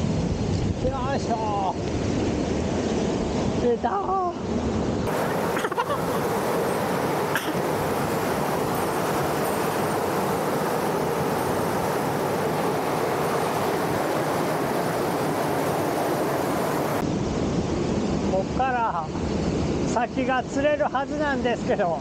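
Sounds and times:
small waterfall rushing: 0:05.1 - 0:17.0.

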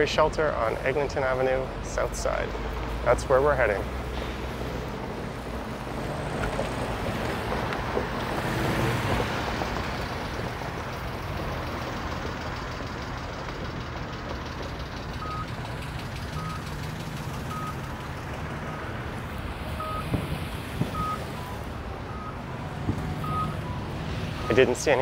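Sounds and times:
street traffic: 0:00.0 - 0:25.0
vehicle backup alarm beeping: 0:15.0 - 0:18.0, 0:19.8 - 0:20.2, 0:20.8 - 0:25.0.

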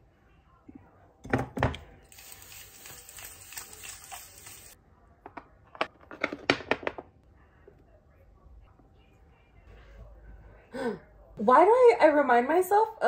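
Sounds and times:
bottles tapping on a countertop: 0:01.2 - 0:01.8.

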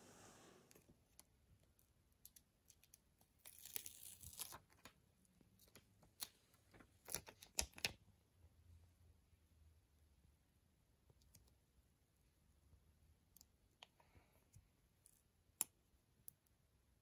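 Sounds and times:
plastic sticker peeling crackle: 0:03.4 - 0:04.9.

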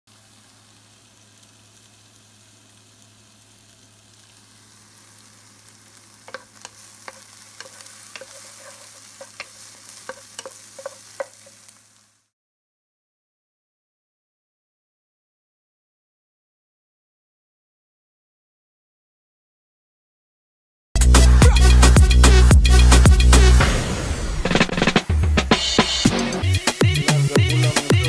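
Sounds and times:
onion sizzling in hot oil: 0:00.1 - 0:12.3.

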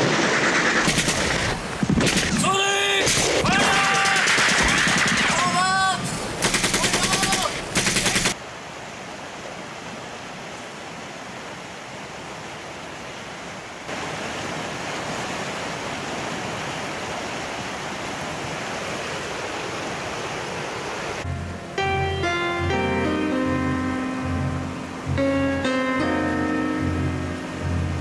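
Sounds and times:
automatic gunfire: 0:00.0 - 0:02.4, 0:03.0 - 0:05.6, 0:06.4 - 0:08.4
water rushing through rapids: 0:05.2 - 0:21.3.

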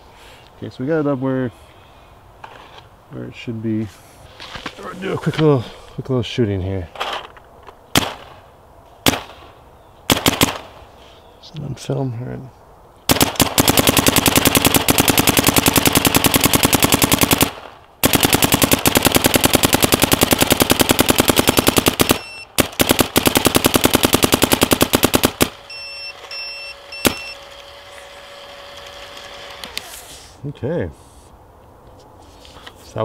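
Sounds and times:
paintball marker firing: 0:10.1 - 0:10.8
short beeps: 0:22.2 - 0:22.5, 0:25.7 - 0:27.4.

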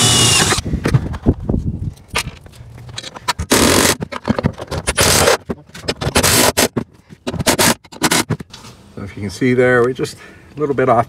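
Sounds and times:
cordless driver driving bolts: 0:00.0 - 0:00.6.

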